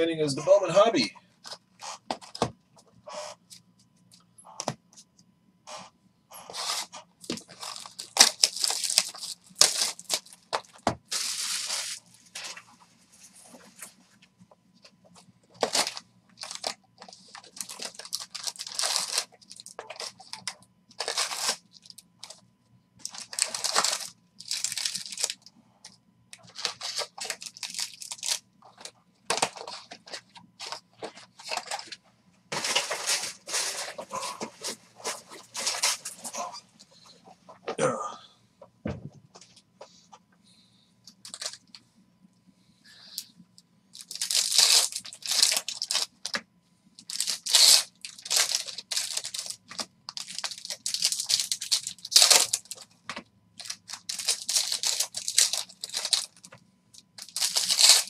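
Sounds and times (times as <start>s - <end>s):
foil packs crinkling: 6.4s - 12.6s, 15.6s - 22.4s, 23.0s - 25.5s, 26.3s - 36.4s, 41.2s - 41.7s, 44.0s - 46.4s, 47.0s - 58.0s
cardboard tearing: 15.6s - 20.2s, 21.0s - 21.6s, 57.2s - 58.0s.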